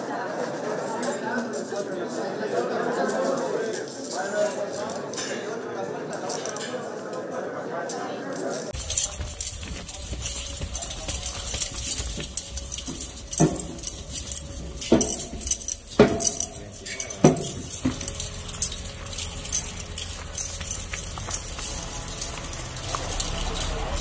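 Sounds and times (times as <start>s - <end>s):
metal clinking and jangling: 8.6s - 24.0s.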